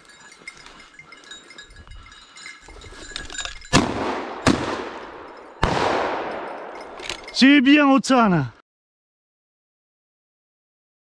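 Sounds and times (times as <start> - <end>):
small bell tinkling: 0.0 - 3.8, 5.0 - 7.9
loud shotgun shot: 3.7 - 6.7.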